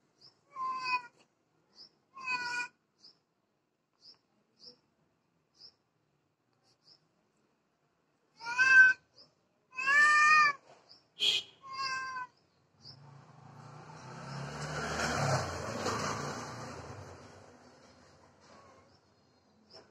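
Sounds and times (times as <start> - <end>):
cat meowing: 0.5 - 1.2, 2.2 - 2.8, 8.4 - 9.1, 9.7 - 10.6, 11.6 - 12.4
vehicle passing rumble: 12.8 - 19.2.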